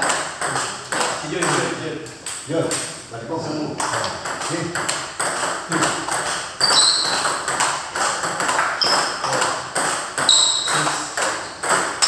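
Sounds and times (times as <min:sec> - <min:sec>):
table tennis balls clicking: 0:00.0 - 0:03.0, 0:03.7 - 0:12.0
short high squeaks: 0:06.6 - 0:07.4, 0:08.8 - 0:09.4, 0:10.3 - 0:11.6.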